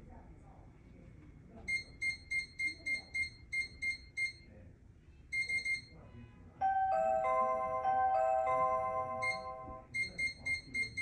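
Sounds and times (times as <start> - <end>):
keypad beeps: 1.7 - 4.4, 9.2 - 11.0
chime melody: 6.6 - 9.9.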